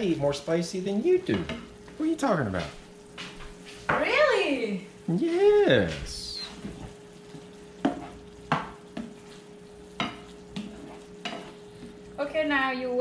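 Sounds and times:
faint sizzle of frying: 0:00.0 - 0:13.0
utensils scraping a frying pan: 0:06.4 - 0:07.0, 0:07.8 - 0:12.0.

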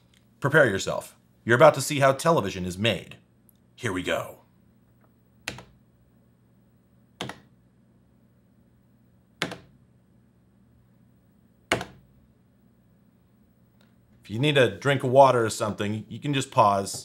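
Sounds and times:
control panel buttons clicking: 0:05.4 - 0:05.8, 0:07.2 - 0:07.5, 0:09.4 - 0:09.7, 0:11.7 - 0:12.0.

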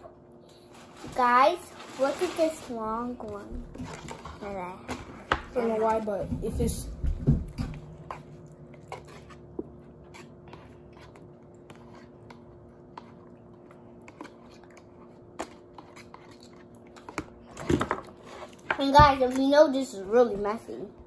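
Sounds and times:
person chewing noodles: 0:07.9 - 0:18.6.

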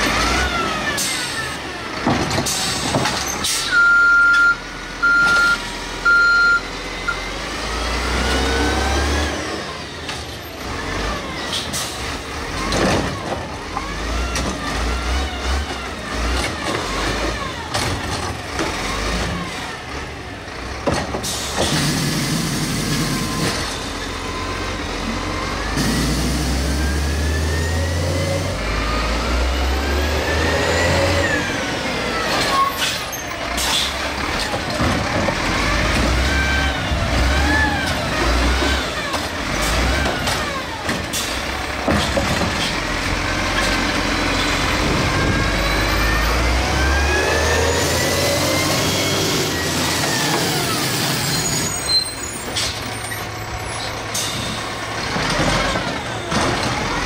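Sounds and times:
diesel engine revving: 0:00.0 - 0:57.0
short high beeps: 0:03.8 - 0:06.7.

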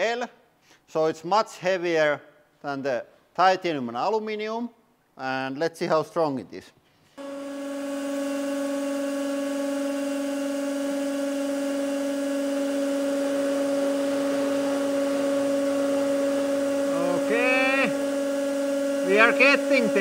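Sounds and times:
hydraulic press humming: 0:07.2 - 0:20.0.

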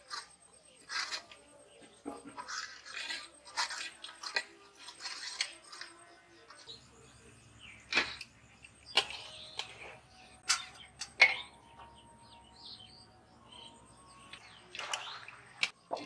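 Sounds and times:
metal spoon scraping steel bowl: 0:00.0 - 0:01.4, 0:02.1 - 0:06.8.

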